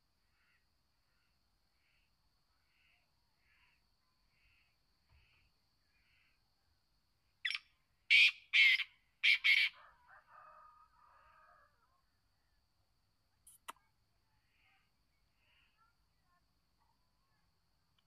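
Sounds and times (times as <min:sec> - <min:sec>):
bird harsh grating calls: 0:07.5 - 0:09.7.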